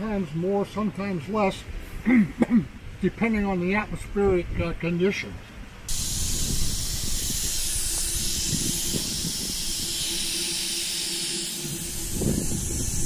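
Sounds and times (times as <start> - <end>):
compressed air hissing: 5.9 - 13.0.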